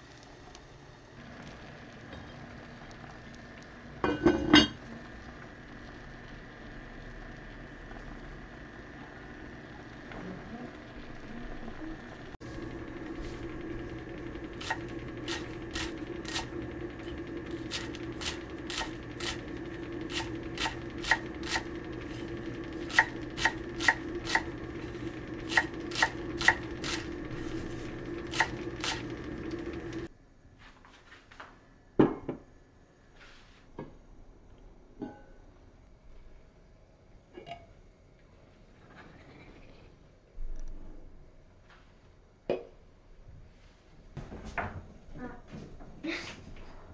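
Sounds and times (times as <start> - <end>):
steady hum: 0.0 - 30.5
tableware clinking: 4.1 - 4.8.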